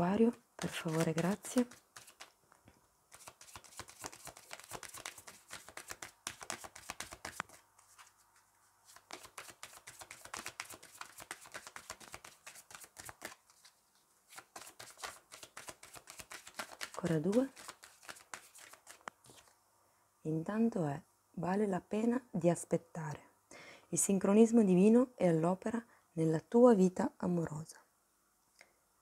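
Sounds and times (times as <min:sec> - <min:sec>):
cards shuffling: 0:00.6 - 0:19.6.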